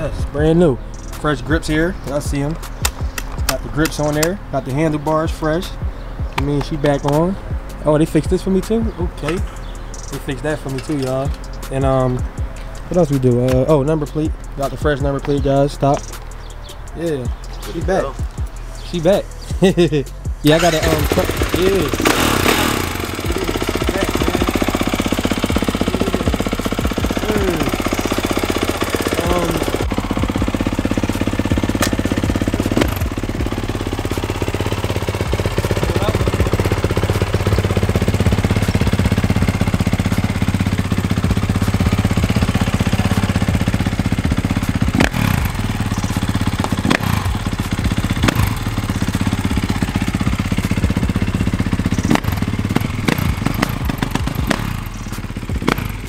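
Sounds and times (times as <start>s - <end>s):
dirt bike engine running: 0.0s - 56.0s
sharp clicks: 2.5s - 4.5s, 15.2s - 16.4s.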